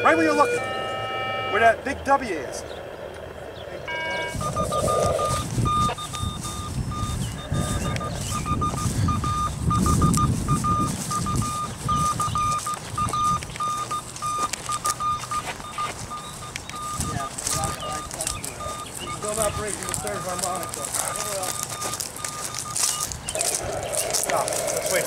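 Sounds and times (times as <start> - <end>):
receiver beeping: 0.0 - 2.2, 3.8 - 25.0
low rumble: 2.6 - 10.2.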